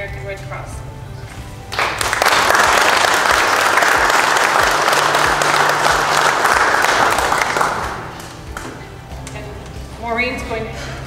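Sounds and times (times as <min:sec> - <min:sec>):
audience applauding: 0:01.7 - 0:08.4.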